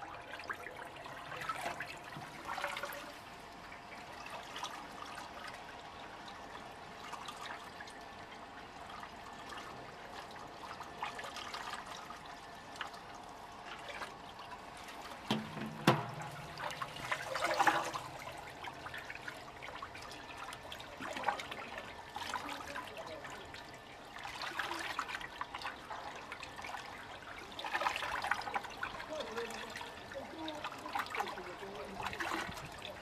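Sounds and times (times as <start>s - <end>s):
water sloshing in a tank: 0.0s - 33.0s.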